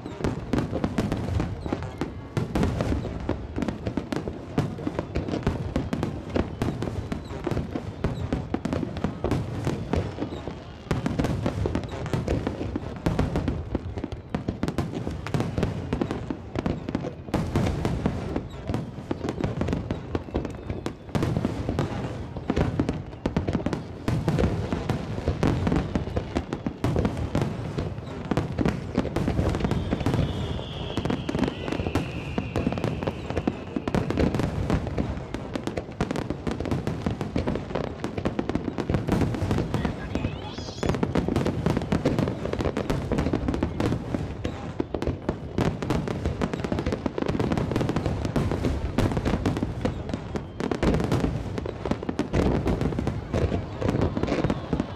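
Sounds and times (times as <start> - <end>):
falling firework whistle: 0.0 - 12.5, 13.2 - 24.5, 25.3 - 45.0, 47.5 - 54.9
fireworks booming and crackling: 0.0 - 54.9.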